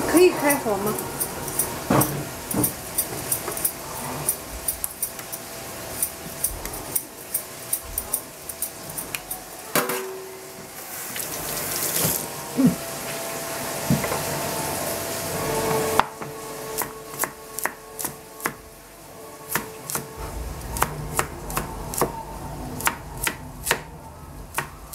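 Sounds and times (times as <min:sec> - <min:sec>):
running tap water: 0:00.0 - 0:24.9
peeler scraping potato skin: 0:00.4 - 0:09.7.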